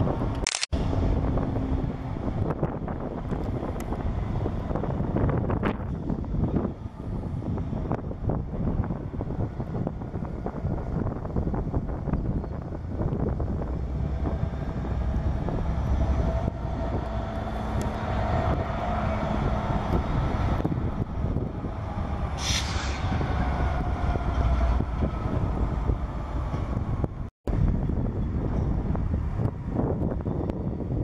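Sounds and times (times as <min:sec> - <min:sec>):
locomotive engine rumbling: 0:00.0 - 0:31.0
sharp hiss: 0:22.4 - 0:23.1.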